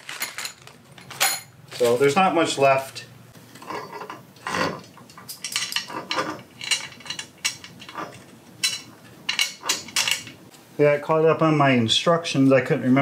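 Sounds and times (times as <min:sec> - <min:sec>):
metal hardware clicking and clinking: 0:03.6 - 0:10.4.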